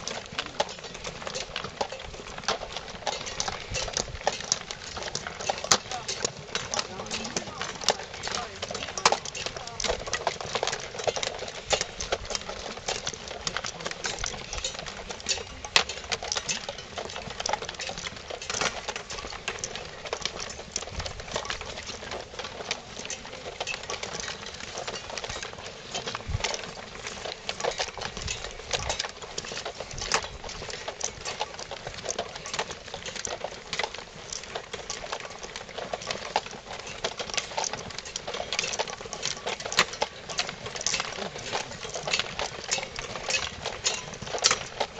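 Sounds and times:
footsteps crunching on gravel: 0.0 - 18.5
backpacks and clothing rustling: 0.0 - 44.9.

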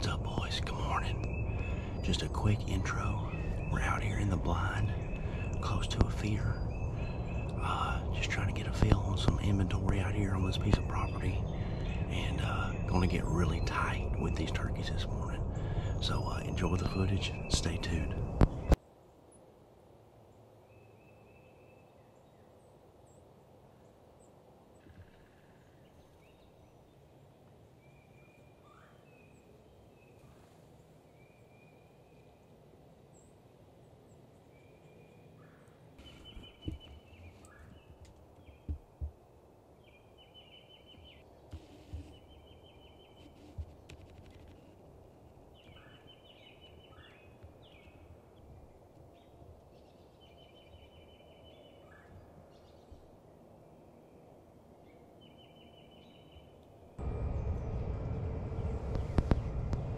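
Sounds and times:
bird calls: 0.0 - 18.8, 34.1 - 39.2, 39.8 - 54.2
soft low thumps: 57.0 - 59.9.

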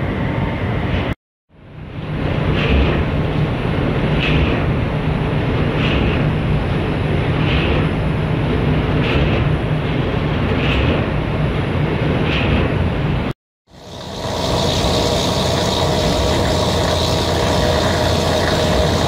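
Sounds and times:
propeller churning water: 0.0 - 19.0
ship low rumble: 0.0 - 19.0.

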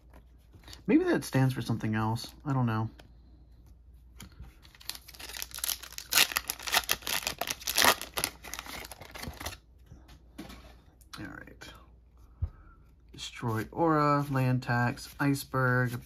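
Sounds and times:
foil wrapper tearing and crinkling: 4.7 - 9.6.

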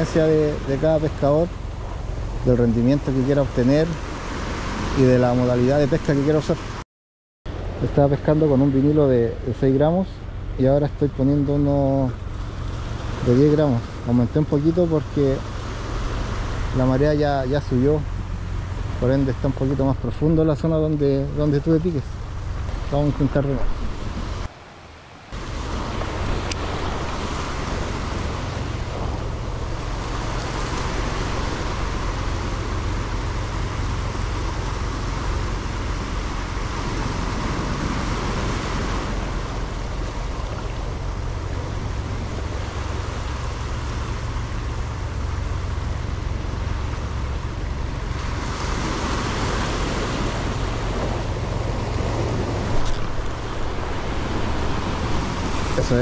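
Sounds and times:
surf washing over rocks: 0.0 - 6.8, 7.5 - 56.0
wind rumble on microphone: 7.5 - 24.5, 25.2 - 56.0.

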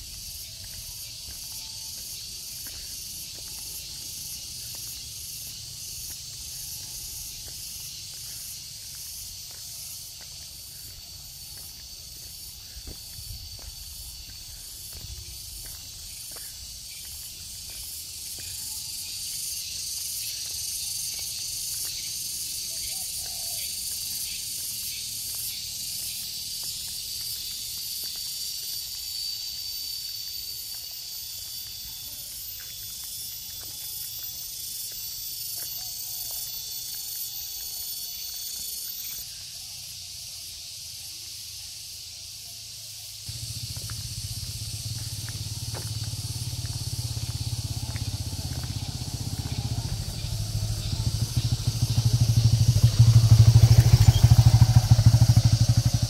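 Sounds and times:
insects buzzing: 0.0 - 56.0
low engine hum: 43.3 - 56.0.

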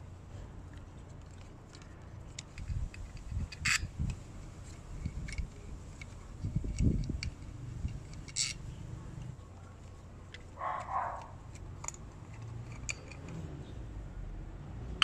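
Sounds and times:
screwdriver metallic ticks and scrapes: 0.7 - 8.7, 9.9 - 13.4.

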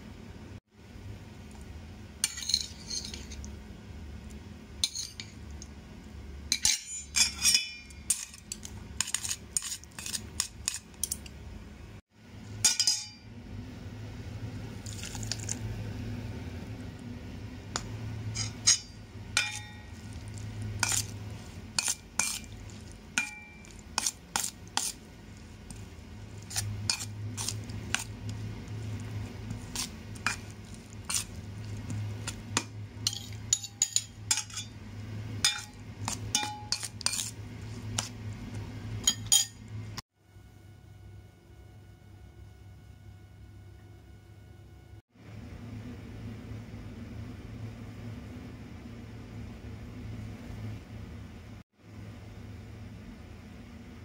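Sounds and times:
low steady hum: 0.0 - 54.0
utensils clinking on metal bowl: 2.2 - 3.5, 4.8 - 5.4, 6.5 - 11.4, 12.6 - 13.2, 18.3 - 34.8, 35.4 - 38.2, 39.0 - 39.8.

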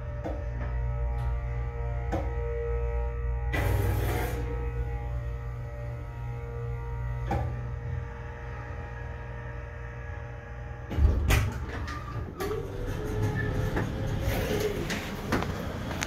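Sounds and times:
door motor whine: 0.0 - 16.0
elevator humming: 0.0 - 16.0
elevator car stopping thump: 10.9 - 16.0.

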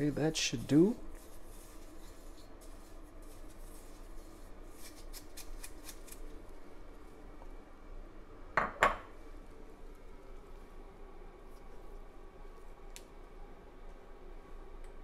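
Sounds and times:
fingers scratching dry spices: 0.0 - 6.3
bowl knocking on countertop: 8.6 - 9.1.

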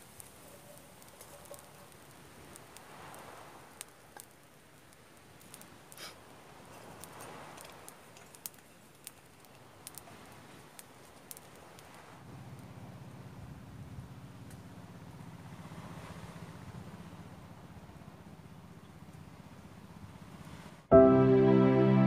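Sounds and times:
campfire crackling: 0.0 - 16.8.

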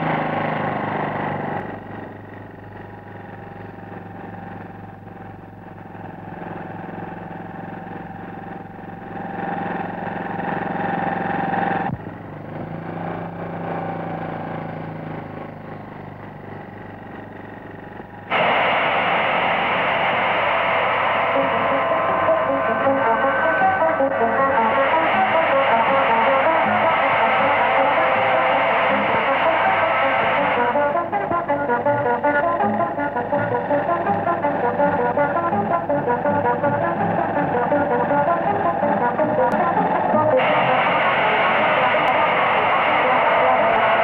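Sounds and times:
motorcycle engine running: 0.0 - 44.0
loud guitar music: 18.2 - 44.0.

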